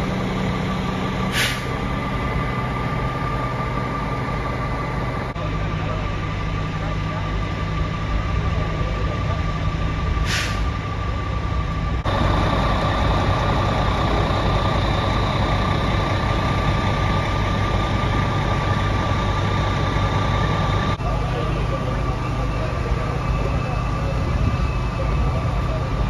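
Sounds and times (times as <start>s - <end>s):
diesel engines idling: 0.0s - 26.0s
air hiss: 1.3s - 1.7s, 10.2s - 10.7s.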